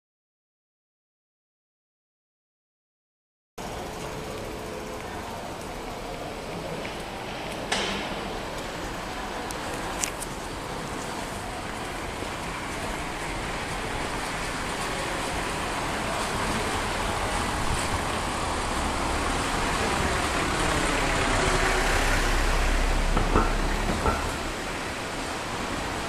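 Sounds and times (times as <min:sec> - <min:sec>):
vehicle approaching: 0:08.3 - 0:26.0.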